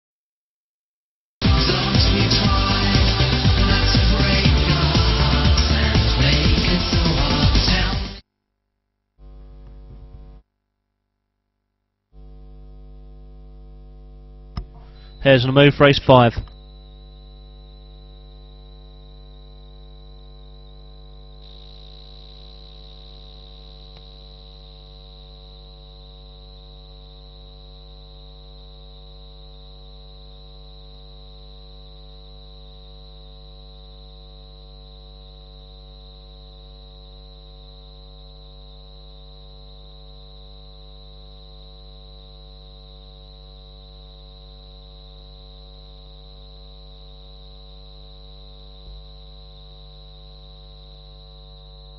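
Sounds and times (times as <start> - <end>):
electrical hum: 9.2 - 10.4, 12.2 - 51.9.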